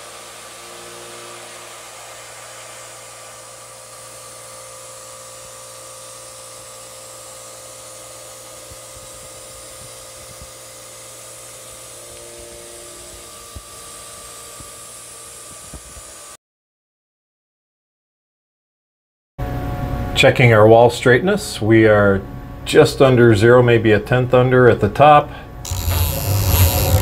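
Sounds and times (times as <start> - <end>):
milling machine spindle whine: 0.0 - 16.4, 25.6 - 27.0.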